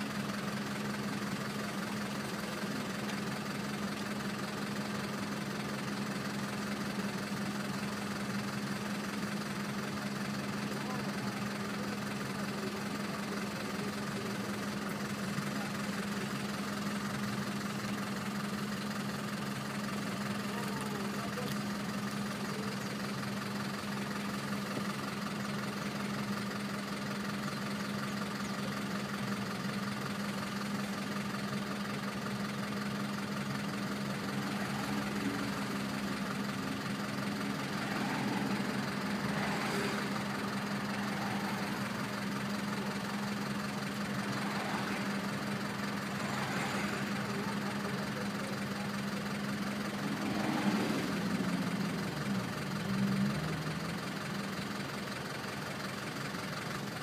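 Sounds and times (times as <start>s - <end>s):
vehicles passing: 0.0s - 56.0s
vehicle engine idling: 0.0s - 57.0s.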